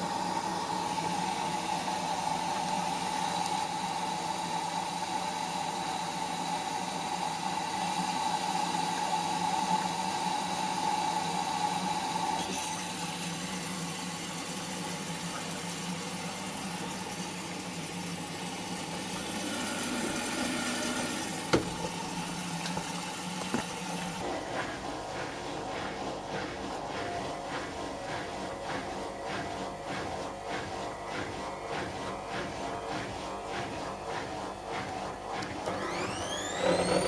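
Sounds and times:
washing machine humming: 0:00.0 - 0:37.0
water sloshing in drum: 0:13.1 - 0:36.0.

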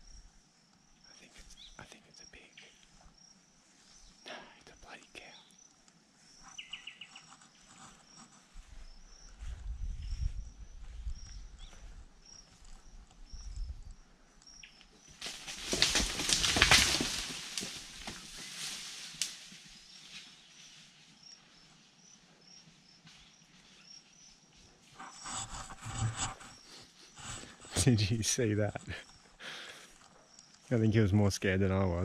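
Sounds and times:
branches snapping and rustling: 0:14.9 - 0:20.4.

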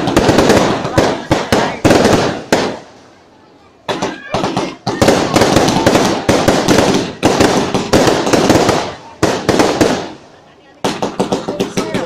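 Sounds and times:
fireworks bangs: 0:00.0 - 0:12.0
fireworks crackling: 0:00.0 - 0:12.0.

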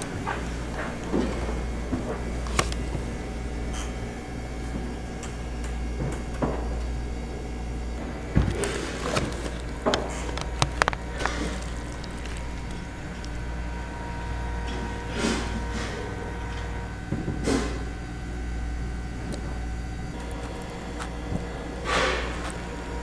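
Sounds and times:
steady low hum: 0:00.0 - 0:23.0
knocks and clicks of handling: 0:08.0 - 0:13.3.

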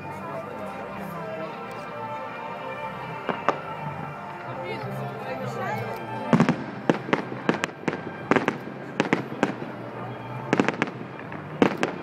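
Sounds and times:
fireworks bangs and cracks: 0:06.3 - 0:09.8, 0:10.5 - 0:12.0.

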